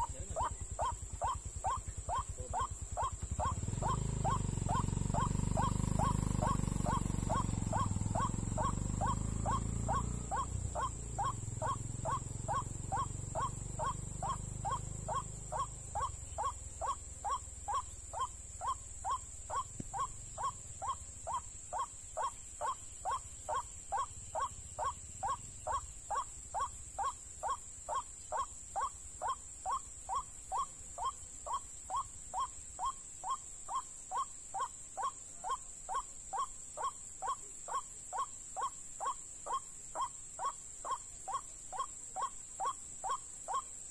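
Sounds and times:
motorbike rumble: 0.0 - 34.7
waterhen calling: 0.0 - 35.2.

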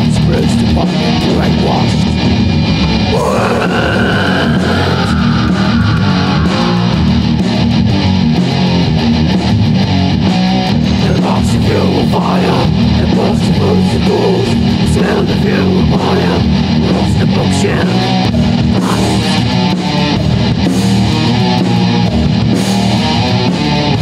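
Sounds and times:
death metal band playing: 0.0 - 24.0
long high sliding note: 4.4 - 8.2.

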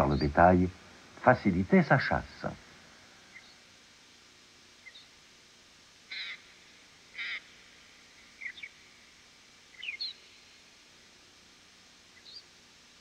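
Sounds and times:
shrike harsh calls: 6.1 - 8.8.

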